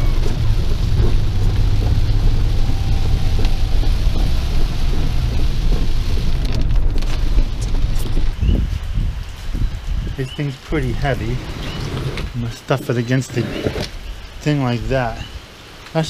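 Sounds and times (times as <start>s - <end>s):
low rumble of moving car: 0.0s - 9.2s
rain on car roof: 0.0s - 13.2s.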